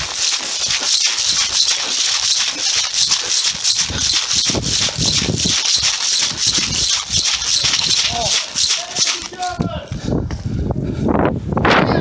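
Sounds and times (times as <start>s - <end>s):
gear jostling: 0.0s - 9.6s
rustling through dry grass: 0.0s - 9.6s.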